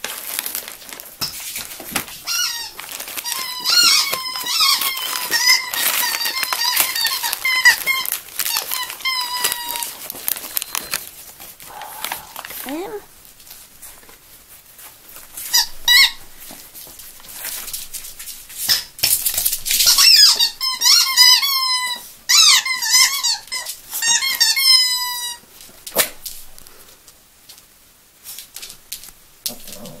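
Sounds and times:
dog toy squeaking: 2.3 - 9.9, 15.5 - 16.2, 19.8 - 25.4.

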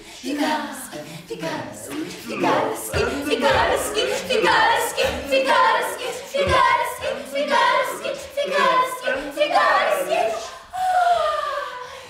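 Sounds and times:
group of people singing: 0.0 - 12.0.

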